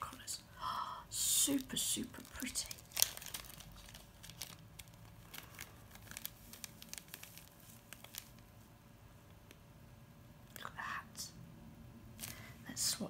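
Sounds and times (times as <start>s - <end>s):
plastic bag crinkling: 1.3s - 8.7s, 12.2s - 12.6s.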